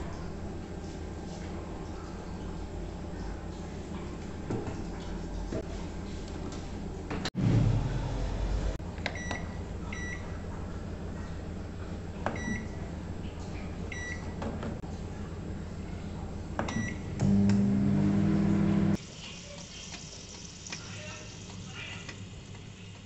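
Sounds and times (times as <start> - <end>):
oven humming: 0.0 - 19.6.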